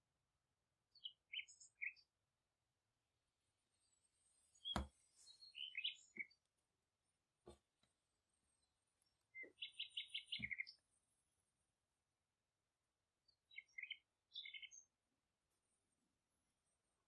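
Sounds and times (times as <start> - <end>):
small bird chirping: 0.9 - 2.2, 3.7 - 6.6, 7.8 - 11.1, 13.2 - 15.0
soft knock: 4.7 - 5.0.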